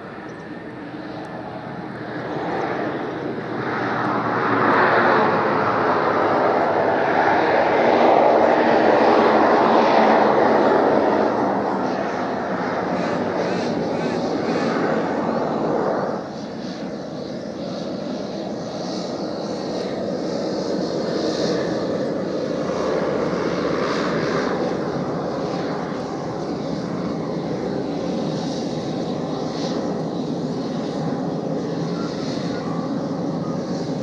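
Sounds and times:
turboprop engine drone: 0.0s - 34.0s.

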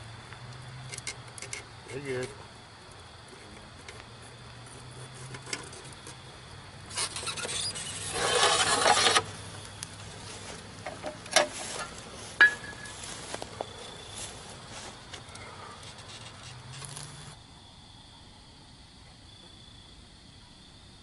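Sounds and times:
sharp pops and crackles: 15.2s - 17.4s.

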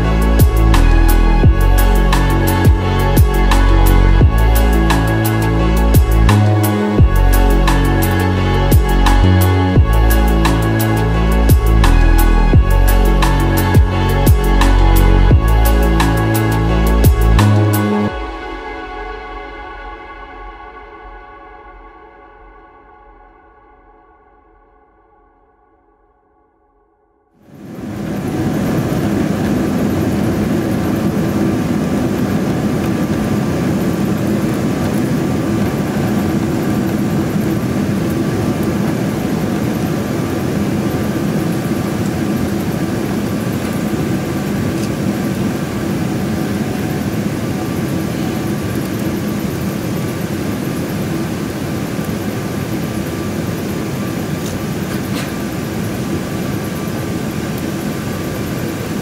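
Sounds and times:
jet engines humming: 0.0s - 23.3s, 27.4s - 59.0s
airplane cabin air rush: 27.4s - 59.0s.

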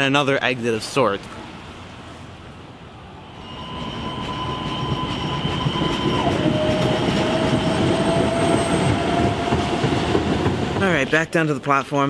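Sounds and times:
wheels rumbling on rails: 1.3s - 11.5s
electric train drive whining: 3.2s - 11.1s.

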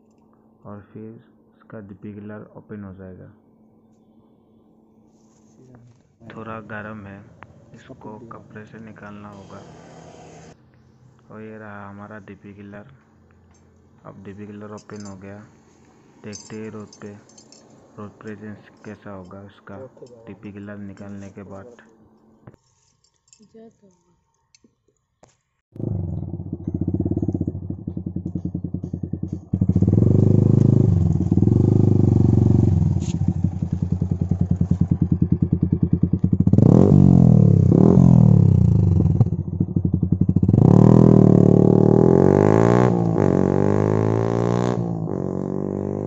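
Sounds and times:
motorcycle engine revving: 7.2s - 10.6s, 25.8s - 46.0s
motorcycle passing by: 7.2s - 10.6s, 25.8s - 46.0s.

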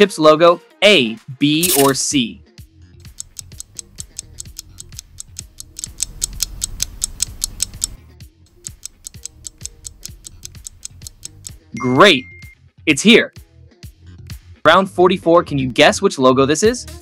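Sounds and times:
background music: 0.0s - 17.0s
clock-like ticking: 3.0s - 11.7s.

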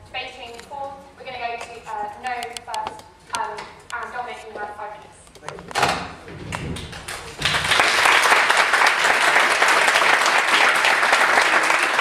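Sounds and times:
audience applause: 6.8s - 12.0s.

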